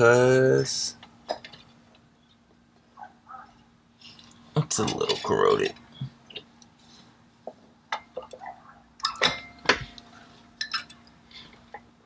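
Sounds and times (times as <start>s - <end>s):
steel parts clinking: 10.6s - 11.1s.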